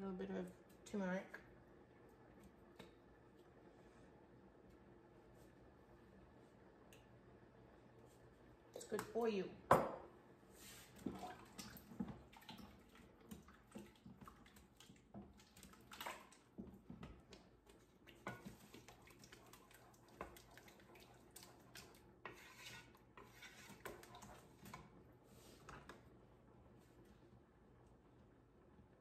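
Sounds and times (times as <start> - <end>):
spoon stirring sauce in pot: 11.8 - 25.0.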